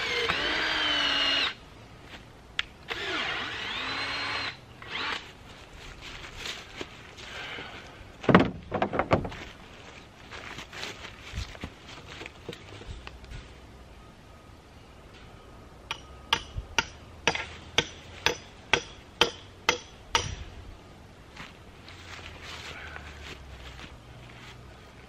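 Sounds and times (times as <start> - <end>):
hammer blows on metal: 15.9 - 20.5.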